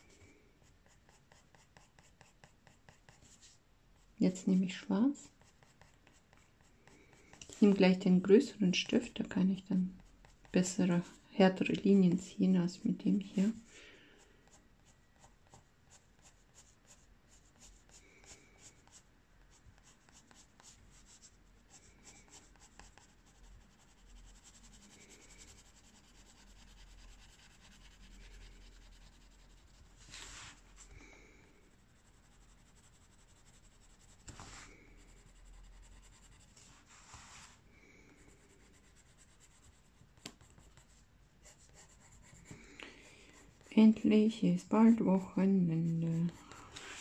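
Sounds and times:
pencil scratching on paper: 0:00.0 - 0:03.6, 0:05.2 - 0:08.0, 0:14.4 - 0:30.8, 0:31.8 - 0:37.6, 0:38.2 - 0:47.0.

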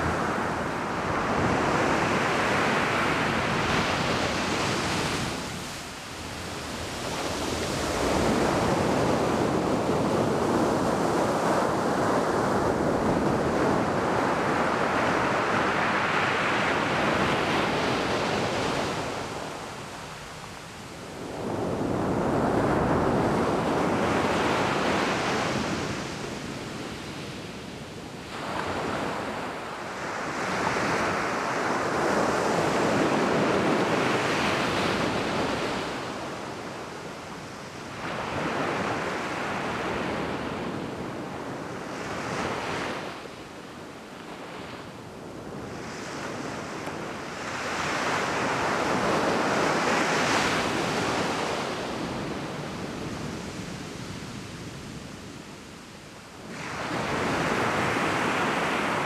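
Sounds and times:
sea waves breaking on beach: 0:44.3 - 0:55.1, 0:56.4 - 0:59.0.

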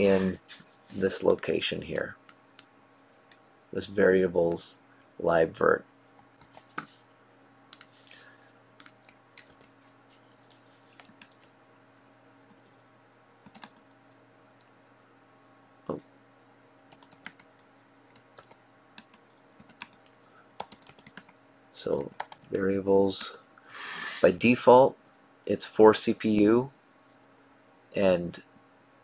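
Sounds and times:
faint steady hum: 0:00.0 - 0:29.0
typing on a keyboard: 0:11.0 - 0:11.5, 0:13.4 - 0:13.8, 0:16.9 - 0:22.6.

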